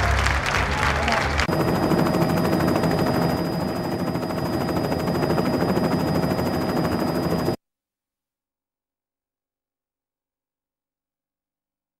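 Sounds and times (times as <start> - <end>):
helicopter rotor chop: 0.2 - 7.6.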